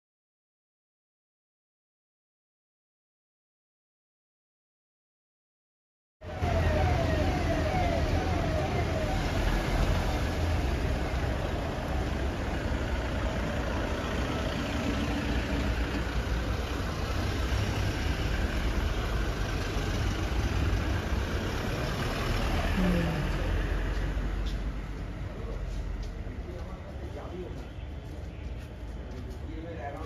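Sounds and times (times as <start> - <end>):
siren warble: 6.2 - 11.1
cars passing slowly: 6.2 - 30.0.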